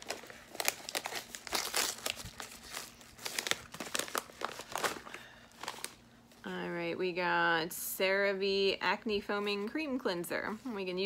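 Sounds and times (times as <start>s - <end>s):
packaging crinkling: 0.0s - 6.1s.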